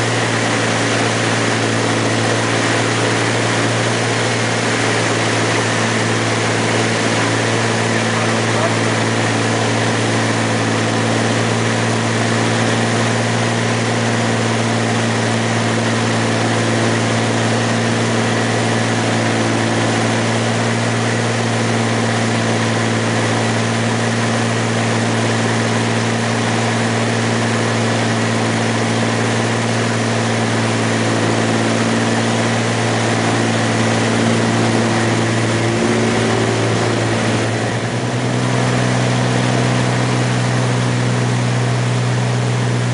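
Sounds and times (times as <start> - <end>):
light aircraft engine droning: 0.0 - 42.9.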